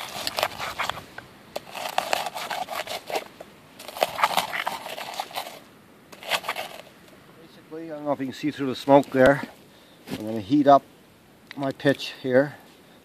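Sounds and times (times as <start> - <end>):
rock crushing charcoal on stone: 0.0 - 6.9, 8.8 - 10.4.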